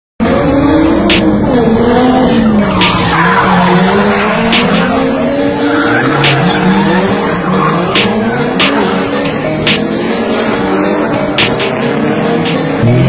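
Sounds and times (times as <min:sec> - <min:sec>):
car engine revving: 0:00.2 - 0:13.0
tyres squealing: 0:02.3 - 0:11.6.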